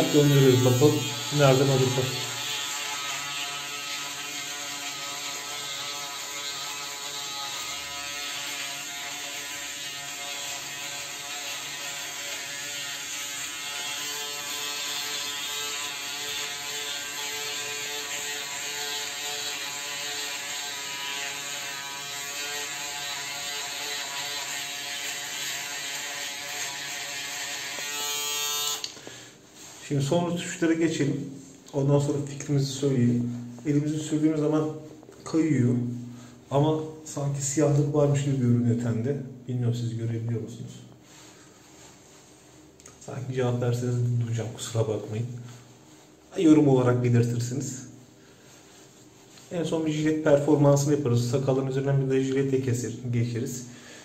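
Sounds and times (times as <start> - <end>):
electric shaver buzzing: 0.0 - 29.0.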